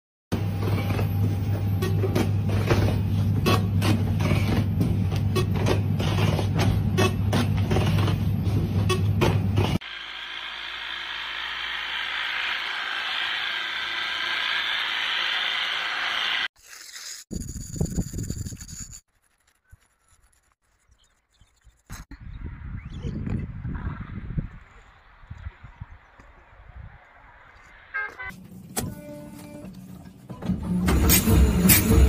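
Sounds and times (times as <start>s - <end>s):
tea harvester buzzing: 9.6s - 16.5s
machine humming: 9.8s - 16.5s.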